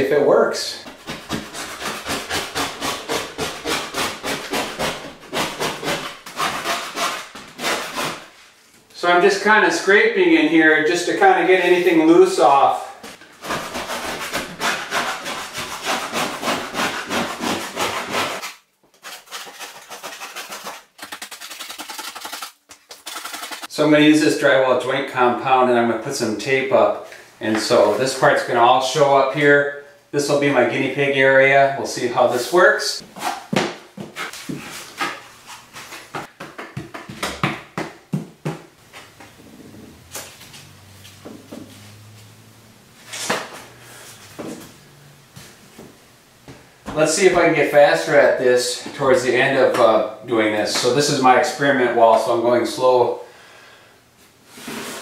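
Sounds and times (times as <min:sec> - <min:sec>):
putty knife scraping drywall: 0:00.8 - 0:08.3, 0:13.4 - 0:22.4, 0:54.6 - 0:55.0.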